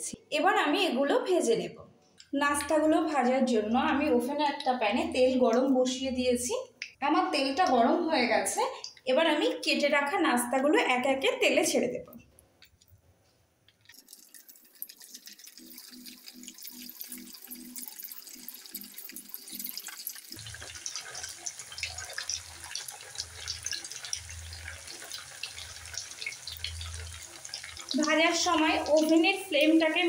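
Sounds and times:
food deep-frying in hot oil: 13.7s - 30.0s.

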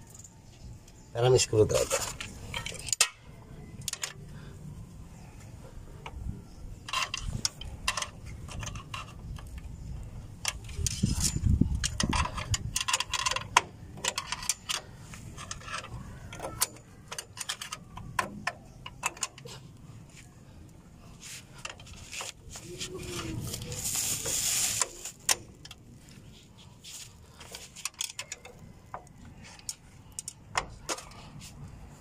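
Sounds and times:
metal clicks and clinks: 6.8s - 9.6s, 10.4s - 19.6s, 27.4s - 31.2s.

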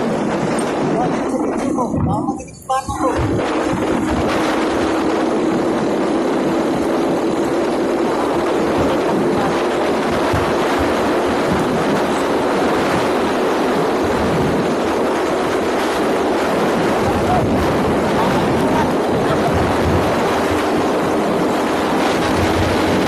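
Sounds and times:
loud wind: 0.0s - 23.0s
motorcycle engine hum: 0.0s - 23.0s
tyre noise on concrete road: 0.0s - 23.0s.

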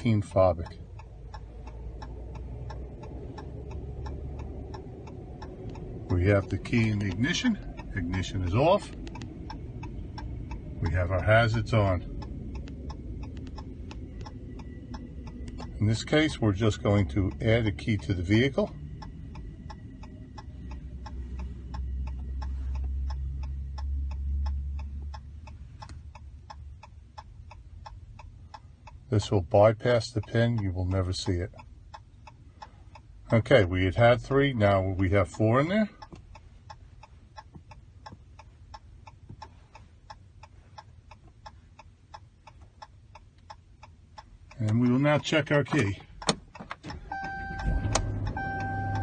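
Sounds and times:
low rumble: 0.0s - 29.0s, 47.0s - 49.0s
hazard flasher ticking: 0.3s - 29.0s.

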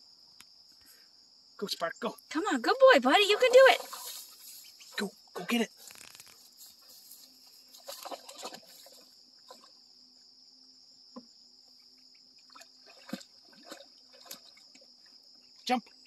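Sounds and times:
insects chirring: 0.0s - 16.0s
dog splashing in water: 3.4s - 4.2s, 7.8s - 9.7s, 12.5s - 15.1s.

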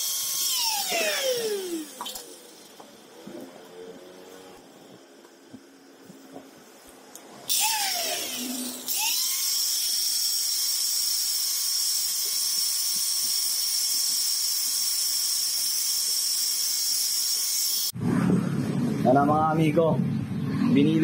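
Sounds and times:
angle grinder whining: 0.0s - 5.6s, 7.4s - 18.0s.

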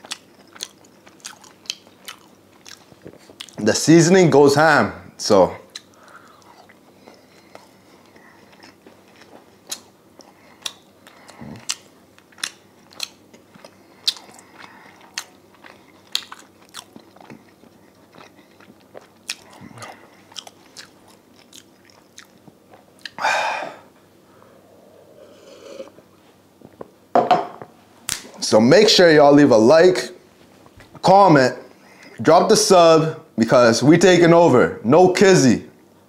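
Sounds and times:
chewing crunches and mouth clicks: 0.0s - 3.6s, 5.7s - 23.2s.

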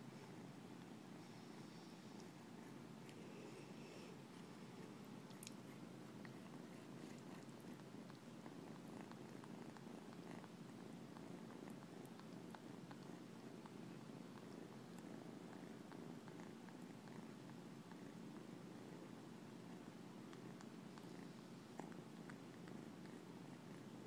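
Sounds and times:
kitten purring: 0.0s - 24.0s.

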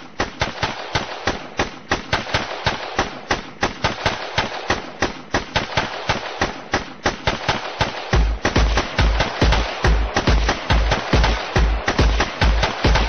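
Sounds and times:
sharp percussive hits: 8.1s - 13.0s.

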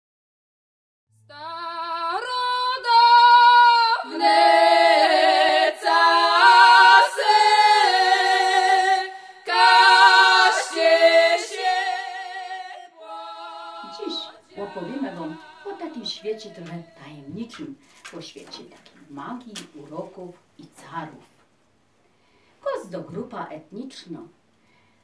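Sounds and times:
women singing in harmony: 1.3s - 17.5s.

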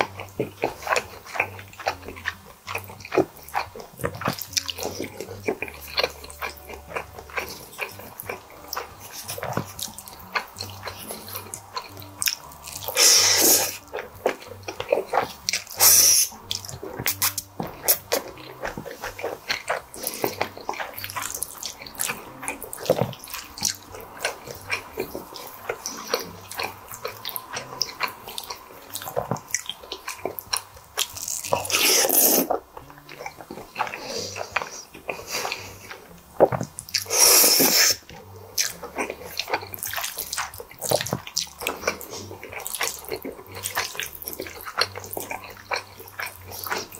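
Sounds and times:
wet chewing and lip-smacking: 0.0s - 46.9s
slurping noodles: 12.8s - 30.3s, 31.1s - 32.6s, 33.7s - 46.9s.

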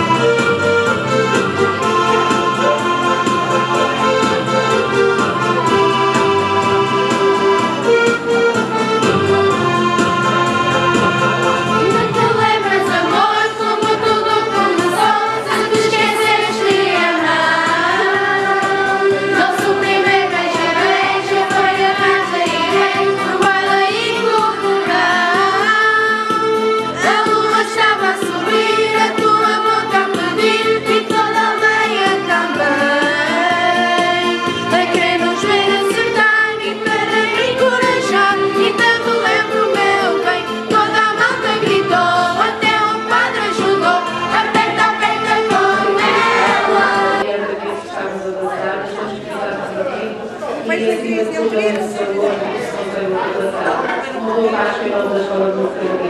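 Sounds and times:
children's choir singing: 0.0s - 50.2s, 51.0s - 56.0s.

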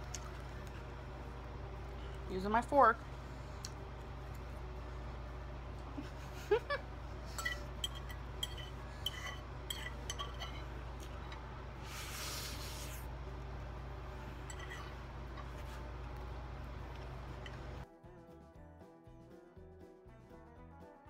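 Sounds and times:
fork clinking on plate: 7.3s - 10.7s
fork scraping across plate: 7.3s - 10.7s, 14.4s - 15.8s.

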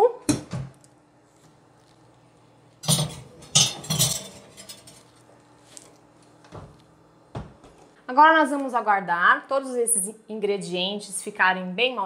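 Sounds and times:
dish clinking on metal rack: 2.8s - 5.0s.

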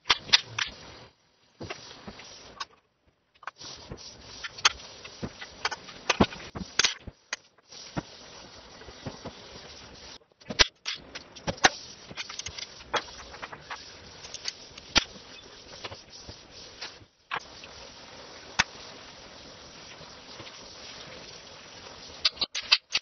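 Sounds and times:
steady hiss: 0.0s - 23.0s
clicks of hand tools and metal parts: 22.2s - 23.0s.

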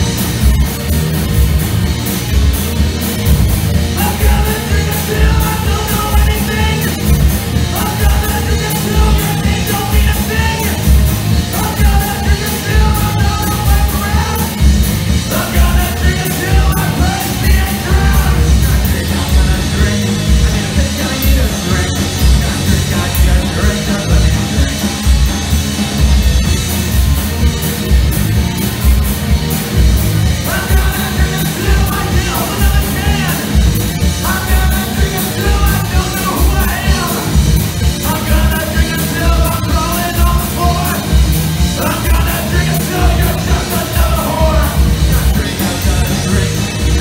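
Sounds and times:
punk rock band playing: 0.0s - 47.0s
person singing and yelling: 3.9s - 14.6s, 15.2s - 24.8s, 30.3s - 47.0s.

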